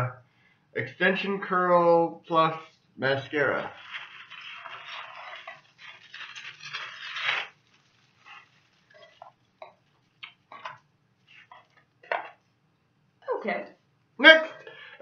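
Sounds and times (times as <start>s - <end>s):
packaging paper rustling: 3.6s - 10.4s.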